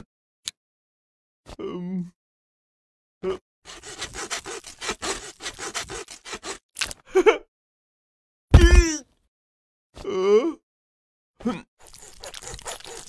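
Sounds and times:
hand saw sawing: 3.6 - 6.6, 11.8 - 13.0.

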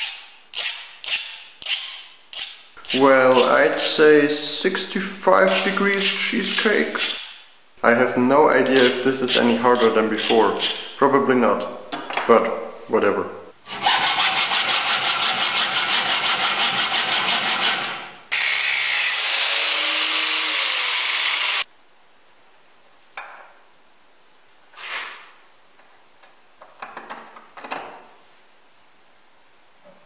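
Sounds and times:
hacksaw cutting steel: 0.0 - 4.0, 5.4 - 7.4, 8.7 - 10.9, 13.7 - 21.6.

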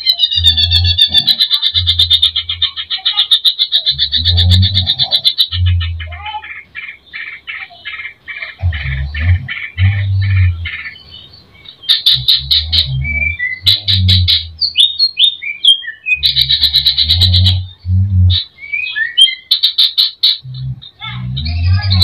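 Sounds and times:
bird singing varied song: 0.0 - 22.0
low hum: 4.0 - 6.2, 8.6 - 15.0, 16.2 - 18.6, 20.4 - 22.0.

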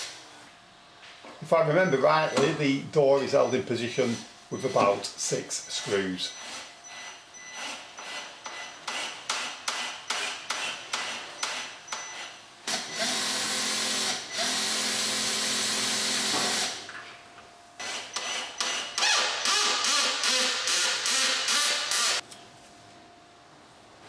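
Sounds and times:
cordless drill driving screws: 12.7 - 16.8, 17.8 - 22.2.

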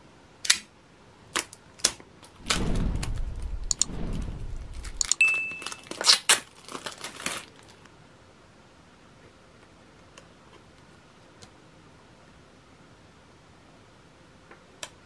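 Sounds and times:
sharp clicks: 1.8 - 5.3
plastic shrink wrap tearing: 4.9 - 7.9
short steady beep: 5.1 - 5.8.

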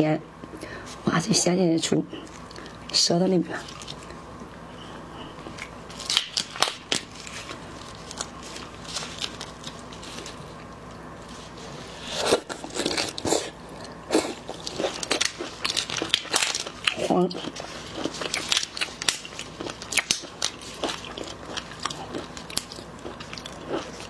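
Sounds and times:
prawn shells cracking: 5.6 - 10.4, 14.5 - 24.0.

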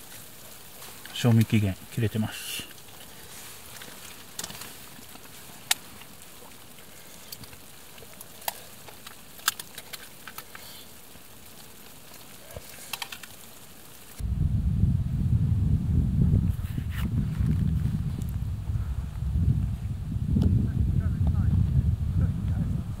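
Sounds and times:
faint steady hiss: 0.0 - 23.0
loud low rumble: 14.2 - 23.0.

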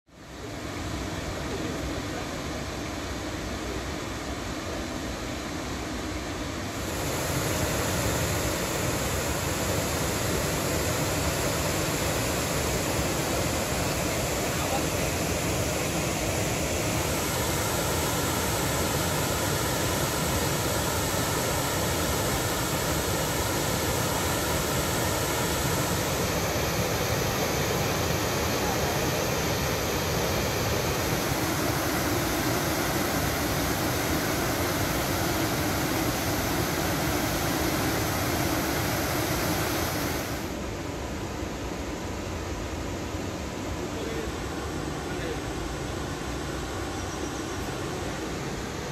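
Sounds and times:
waterfall rushing: 6.7 - 40.8.

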